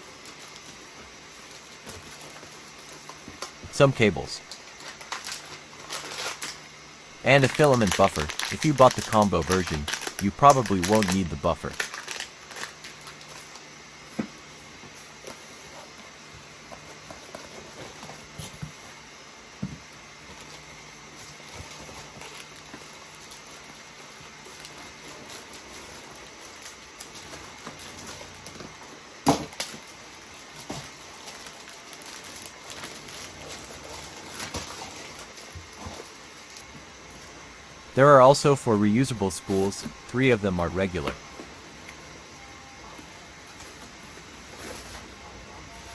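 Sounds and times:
plastic packaging crinkling: 4.5 - 6.6, 7.3 - 13.7, 21.2 - 28.7, 29.5 - 36.7.

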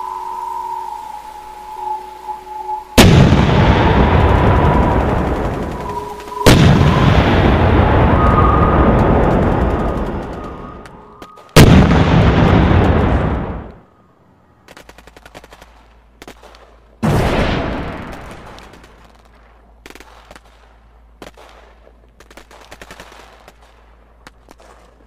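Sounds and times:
loud boom: 1.6 - 13.8
rapid crackling pops: 3.0 - 13.8, 14.6 - 17.0, 17.8 - 25.0.

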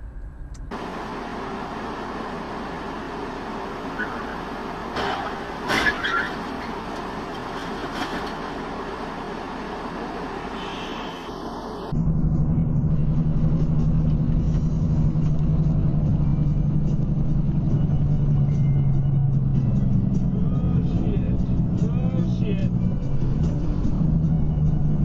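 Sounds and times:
engine drone inside vehicle: 0.0 - 25.0
traffic and road noise: 0.0 - 25.0.

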